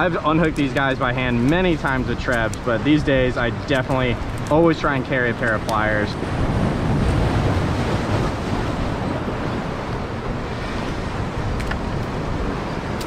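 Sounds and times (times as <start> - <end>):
waves breaking on rocks: 0.0 - 13.0
wind buffeting microphone: 0.0 - 13.0.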